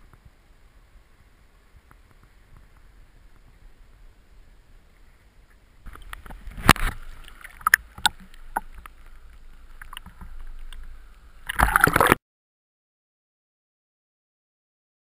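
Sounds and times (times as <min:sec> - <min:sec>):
rush of water: 0:00.0 - 0:12.2
water sloshing and splashing: 0:05.8 - 0:12.2.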